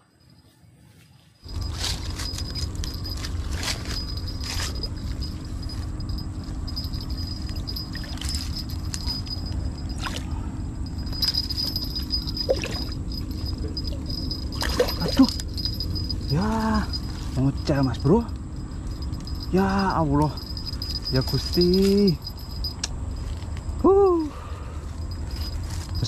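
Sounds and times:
steady low rumble: 1.4s - 26.0s.

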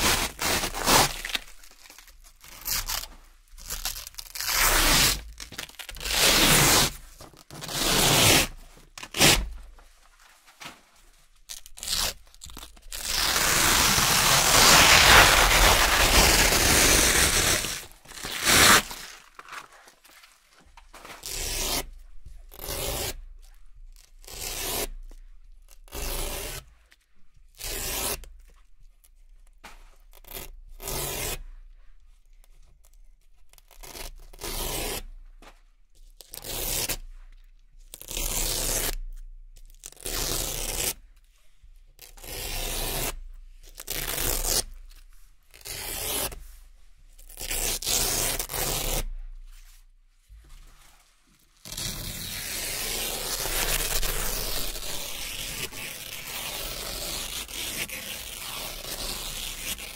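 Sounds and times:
velcro strips ripping: 0.0s - 9.6s, 11.5s - 20.2s, 21.2s - 21.9s, 39.8s - 41.0s, 42.0s - 46.4s, 47.2s - 49.2s, 51.6s - 59.9s.

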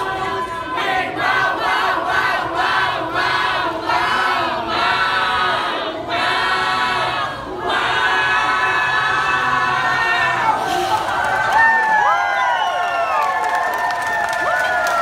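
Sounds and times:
choir singing in harmony: 0.0s - 10.9s.

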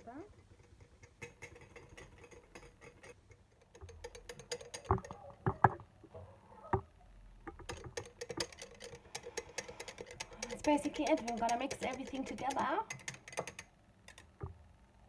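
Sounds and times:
whisk ticking against glass: 0.3s - 5.7s, 7.5s - 14.5s
whisk knocking on glass jar: 0.7s - 5.7s, 7.6s - 13.6s.

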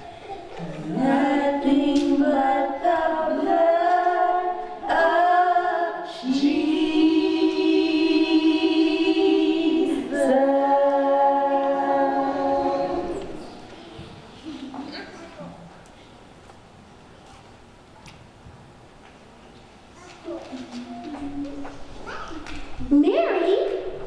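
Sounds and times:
group of voices singing: 0.6s - 13.8s.

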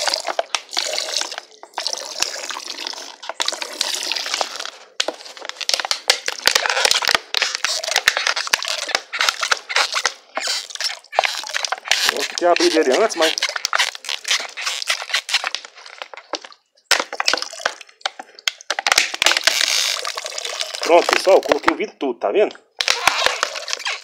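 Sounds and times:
liquid trickling into soap froth: 0.0s - 5.0s
crackling froth: 0.0s - 16.6s.

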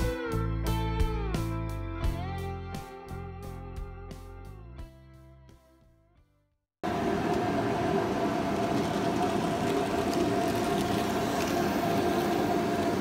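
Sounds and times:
electric motor whine: 6.9s - 13.0s
model train wheels on rails: 6.9s - 13.0s.

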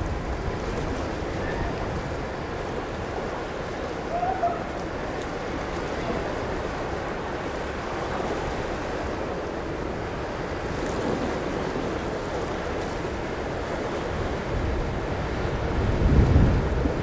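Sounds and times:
wind noise on microphone: 0.0s - 3.2s, 14.1s - 17.0s
river water washing: 0.0s - 17.0s.

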